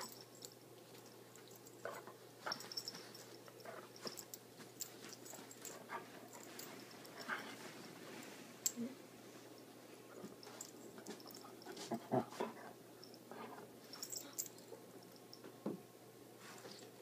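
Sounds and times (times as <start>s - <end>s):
dog soft play sounds: 0.0s - 15.2s
bed covers rustling: 1.4s - 8.8s.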